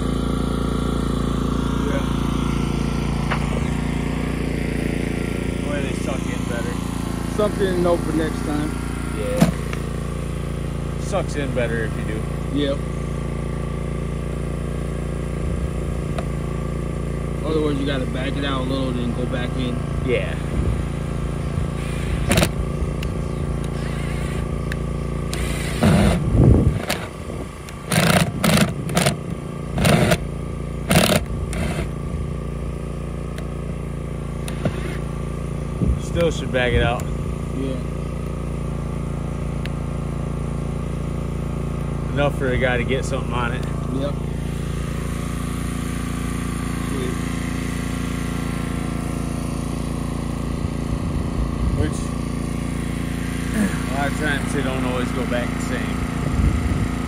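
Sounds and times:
engine droning: 0.0 - 57.0
cordless drill driving screws: 21.7 - 32.0, 34.4 - 35.2.

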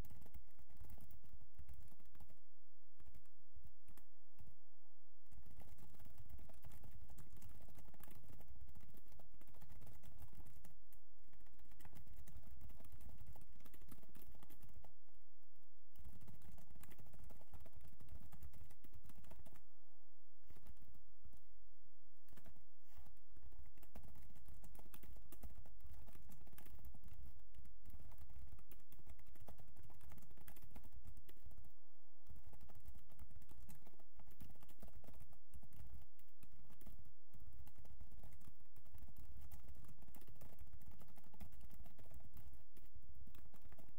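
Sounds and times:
computer keyboard key clicks: 23.7 - 31.6, 37.6 - 43.9.

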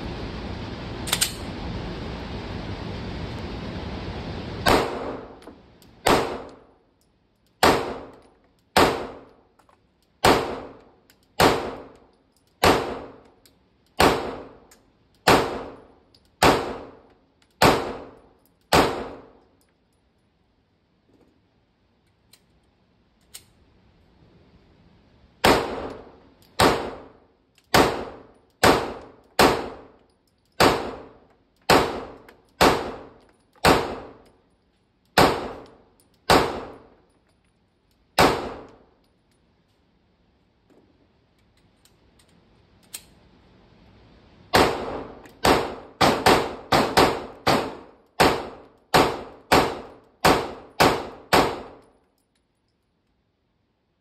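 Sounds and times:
pistol shots indoors: 4.6 - 6.9, 7.5 - 9.4, 10.2 - 19.6, 25.4 - 37.2, 38.1 - 39.1, 44.5 - 52.5.

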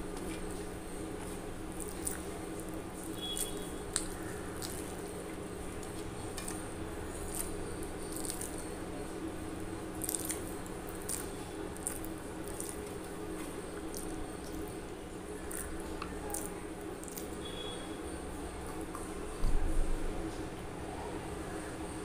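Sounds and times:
person chewing food: 0.0 - 8.7, 10.0 - 17.4
steady low hum: 0.0 - 22.0.

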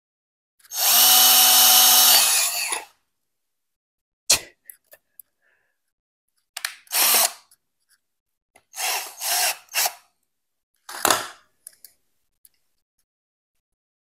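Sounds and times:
cordless drill boring plastic: 0.6 - 2.9, 6.8 - 7.5, 8.6 - 10.0.

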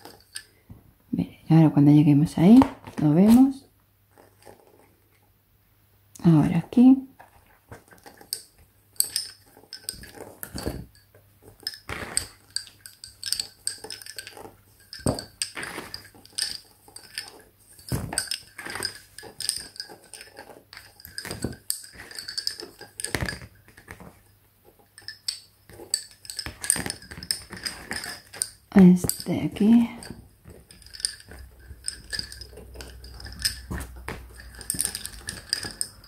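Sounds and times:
lace bobbins clicking: 0.0 - 0.7, 2.4 - 5.0, 6.2 - 36.0.

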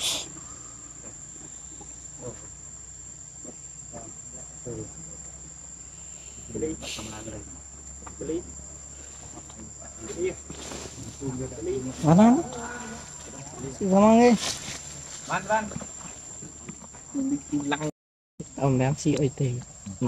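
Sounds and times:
brief hiss: 0.0 - 0.3
insects droning: 0.0 - 20.0.

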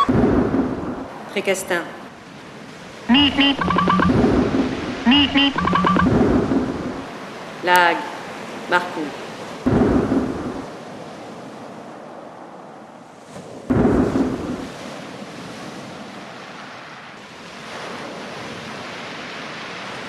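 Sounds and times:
deep rumbling booms: 0.1 - 1.1, 9.7 - 10.7
steady rushing noise: 3.1 - 7.8.

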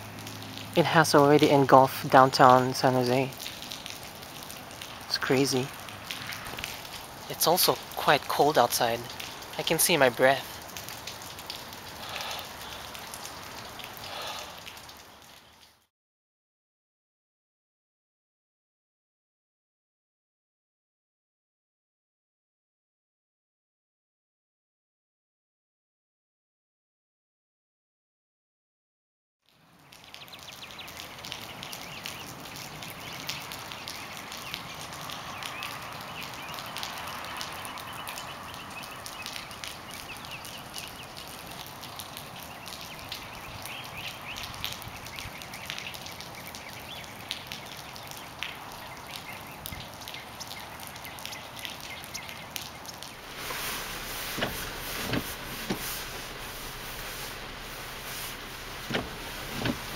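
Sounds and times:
rain falling: 0.0 - 15.9, 29.5 - 59.9
hail tapping on a car: 52.9 - 59.9.

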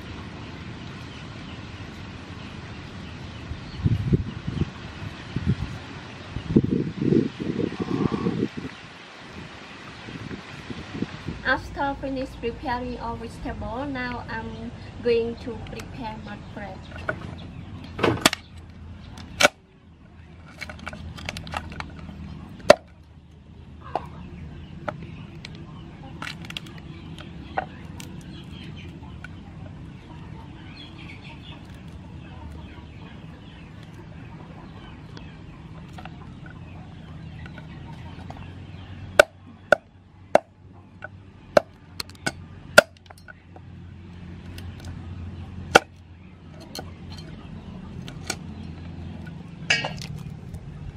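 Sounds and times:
chickens clucking: 7.5 - 8.8, 12.3 - 50.9
crab shell cracking: 26.2 - 28.6
cleaver chopping on wooden block: 39.2 - 40.5, 45.7 - 46.0.

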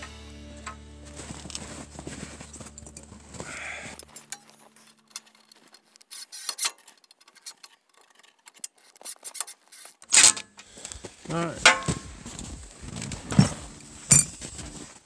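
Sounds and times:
metal clatter: 12.9 - 14.8
hand tool being handled: 13.3 - 14.8
clinks of small metal hardware: 13.4 - 14.5.

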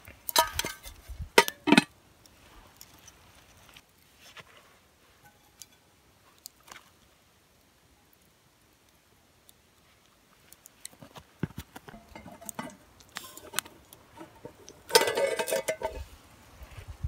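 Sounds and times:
metal pans clinking: 0.3 - 1.9, 11.9 - 16.0
metal pan scraping with ringing: 5.2 - 5.8, 12.0 - 16.0.

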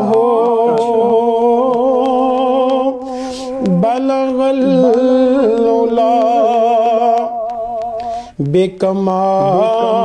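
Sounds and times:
man singing: 0.0 - 10.0
quick breath: 3.1 - 3.6, 8.0 - 8.4.

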